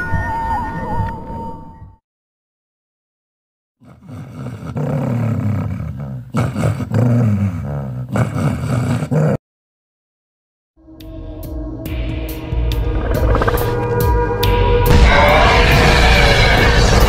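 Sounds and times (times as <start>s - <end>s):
monster growling: 3.8s - 9.4s, 14.8s - 17.0s.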